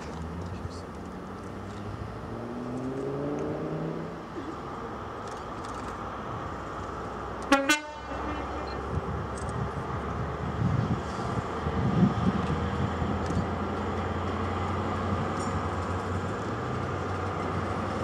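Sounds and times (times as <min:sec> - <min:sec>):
train diesel engine running: 0:04.2 - 0:18.0
train horn toot: 0:07.5 - 0:08.7.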